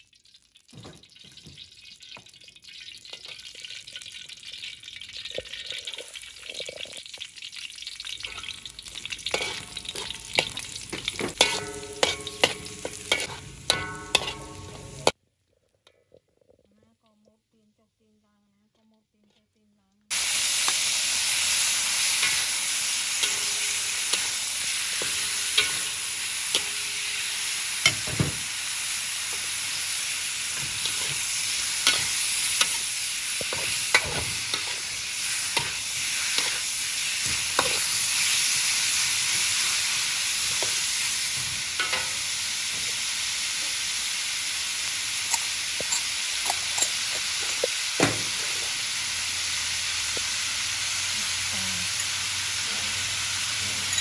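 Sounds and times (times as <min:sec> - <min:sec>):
pork sizzling in a wok: 0:00.0 - 0:15.2, 0:20.1 - 0:54.0
metal spatula scraping wok: 0:08.2 - 0:15.2, 0:21.7 - 0:28.2, 0:28.8 - 0:43.0.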